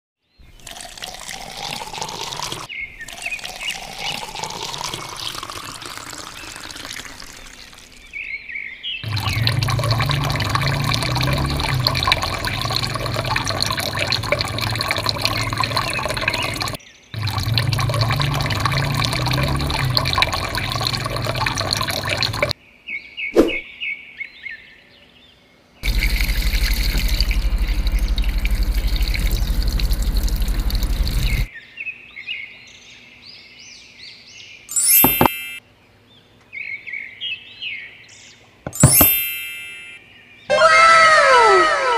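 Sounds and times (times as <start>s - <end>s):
birds chirping: 2.6s - 33.4s
thick paint pouring and splattering: 9.0s - 22.5s.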